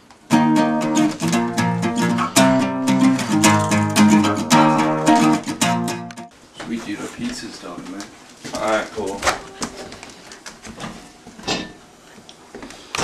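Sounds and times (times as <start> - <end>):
acoustic guitar strumming: 0.3 - 6.3.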